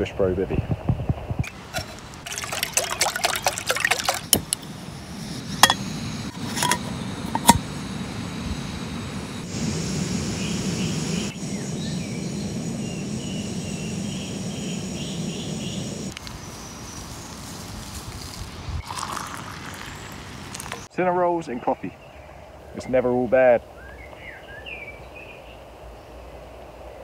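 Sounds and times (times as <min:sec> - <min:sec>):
water pouring into metal pot: 0:01.5 - 0:04.6, 0:18.2 - 0:20.8
gas stove burner hissing: 0:04.7 - 0:16.4.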